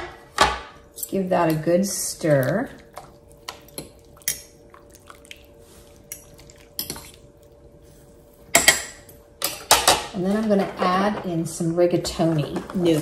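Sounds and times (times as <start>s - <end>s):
utensils clinking and scraping pot: 8.5s - 13.0s.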